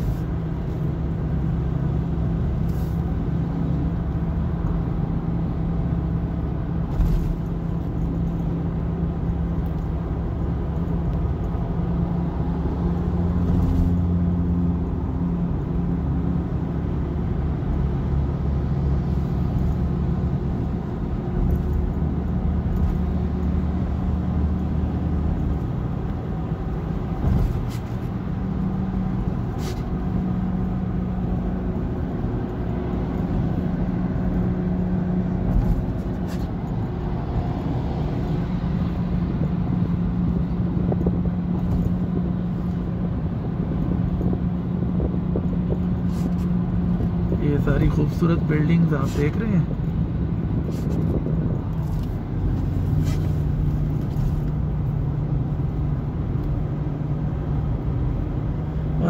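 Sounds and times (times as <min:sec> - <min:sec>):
car engine and road drone: 0:00.0 - 0:59.0.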